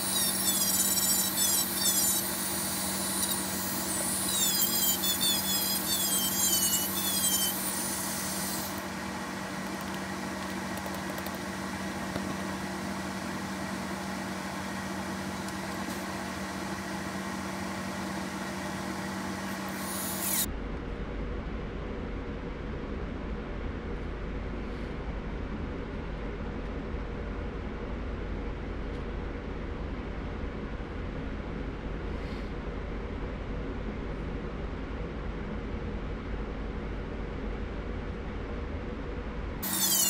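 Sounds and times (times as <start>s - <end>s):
bit squealing against shoe: 0.0s - 8.8s, 19.8s - 20.5s, 39.6s - 40.0s
rotary tool running: 0.0s - 11.4s, 19.5s - 20.5s, 39.6s - 40.0s.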